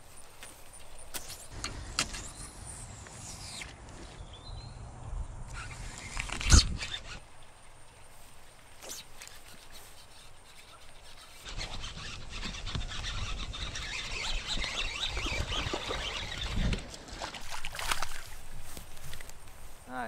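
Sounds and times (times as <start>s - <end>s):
fishing reel cranking: 9.2s - 16.7s.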